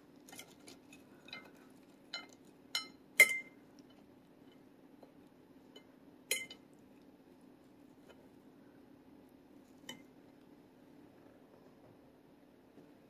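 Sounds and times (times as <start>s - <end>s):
faint steady hum: 0.0s - 13.0s
cutlery clinking on plate: 0.3s - 3.6s, 5.8s - 6.6s.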